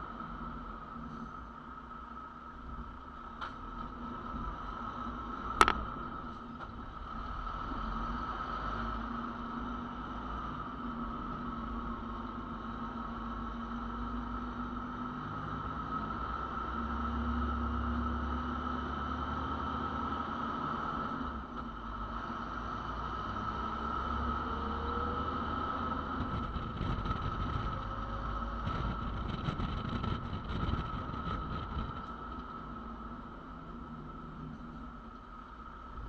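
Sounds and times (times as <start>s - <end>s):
tyre and wind noise: 26.0s - 33.5s.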